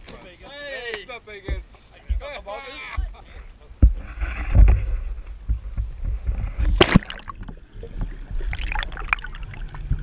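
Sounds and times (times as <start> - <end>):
wind rumbling on microphone: 3.0 - 10.0
water sloshing: 6.1 - 10.0
muffled underwater bubbling: 6.6 - 10.0
loud splash: 6.8 - 7.4.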